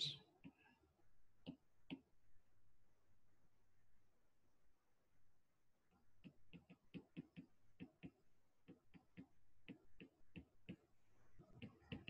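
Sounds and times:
stylus tapping on pen tablet: 1.4s - 2.2s, 6.2s - 12.0s.

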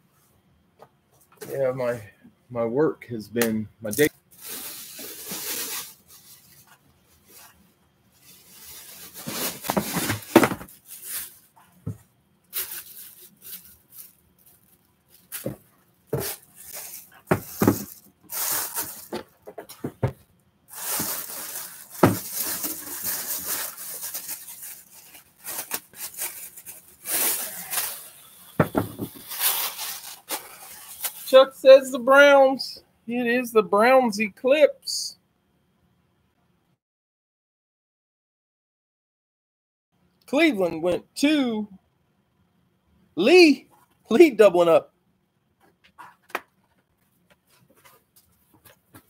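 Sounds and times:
plastic bag crinkling: 4.4s - 7.6s, 8.2s - 11.6s, 12.5s - 20.1s, 20.7s - 31.4s.

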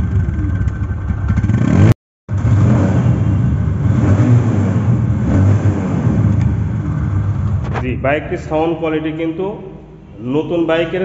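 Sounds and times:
motorcycle engine running: 0.0s - 7.8s.

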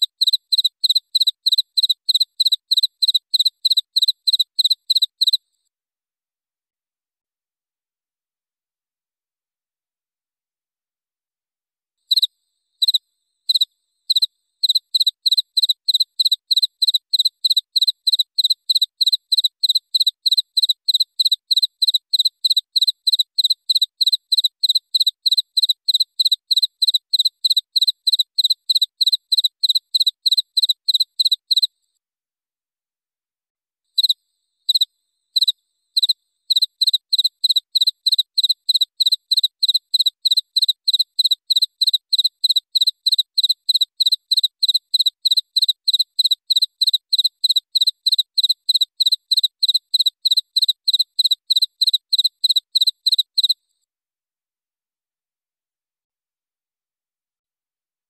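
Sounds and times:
cricket chirping: 0.0s - 5.4s, 12.1s - 31.7s, 34.0s - 53.6s.

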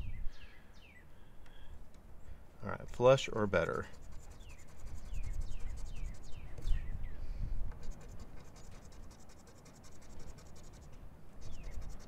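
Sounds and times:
scratching lottery ticket: 3.8s - 6.4s, 7.7s - 12.0s.

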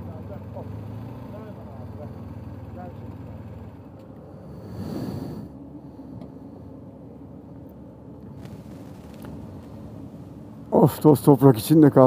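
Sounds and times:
motorcycle engine idling: 0.0s - 4.0s.

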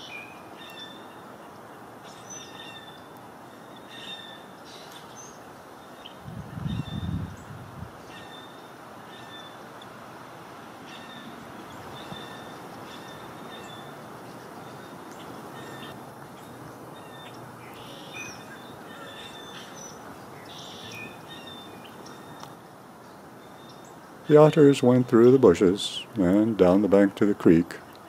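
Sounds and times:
steady background hiss: 0.0s - 28.0s
birds squawking: 10.9s - 22.5s.

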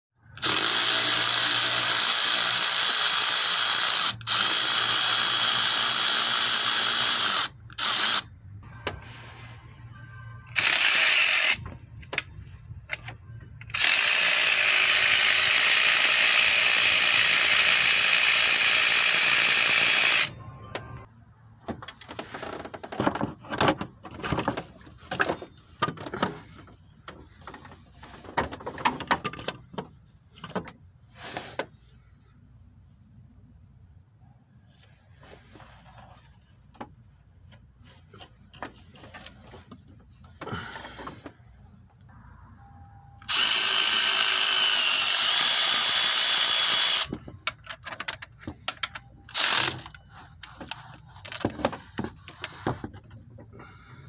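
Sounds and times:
cordless ratchet running: 0.4s - 8.3s, 10.5s - 11.6s, 13.6s - 20.3s, 43.2s - 50.0s
metal parts knocking and clicking: 46.8s - 53.2s.

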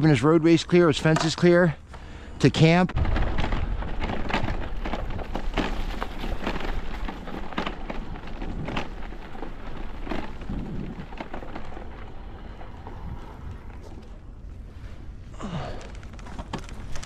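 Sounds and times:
wind rumble on microphone: 3.0s - 15.3s.

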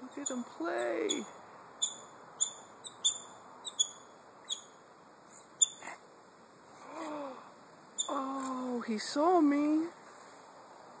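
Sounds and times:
otters chirping: 0.0s - 6.0s, 8.0s - 8.3s.

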